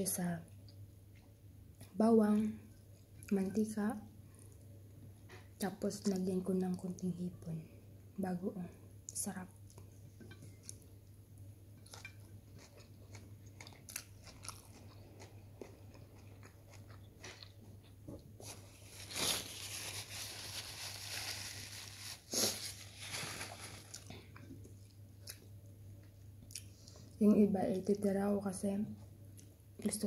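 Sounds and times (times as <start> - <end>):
chewing and crunching: 11.8 - 21.4.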